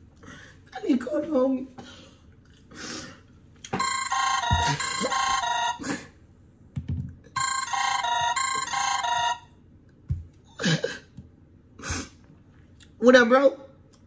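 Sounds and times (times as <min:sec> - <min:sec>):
warbling two-tone phone ring: 0:03.8 - 0:05.8, 0:07.4 - 0:09.5.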